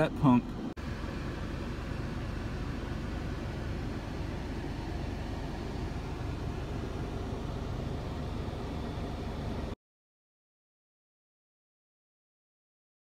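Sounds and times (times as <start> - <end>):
car road and engine noise: 0.0 - 9.8.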